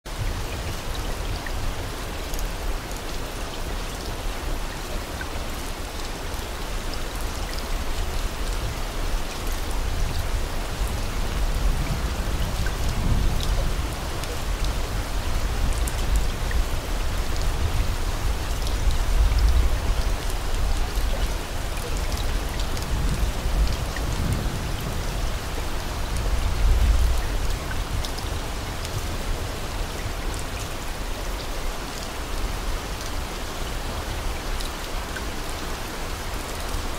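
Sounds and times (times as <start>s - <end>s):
steady rain: 0.0s - 36.9s.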